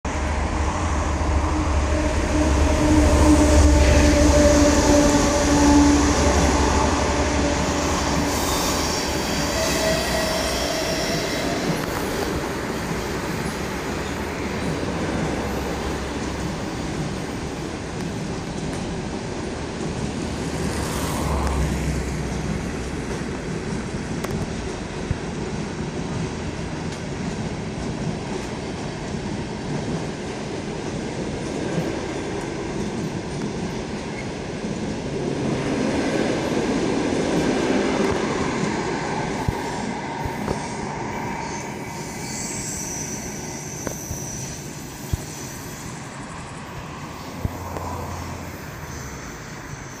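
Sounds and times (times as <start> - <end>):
train wheels rumbling on rails: 0.1 - 50.0
wheel squeal: 8.1 - 12.2, 41.4 - 46.6.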